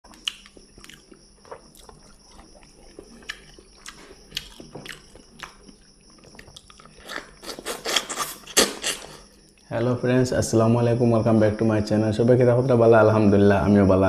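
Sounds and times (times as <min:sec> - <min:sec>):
person chewing: 0:00.1 - 0:09.6.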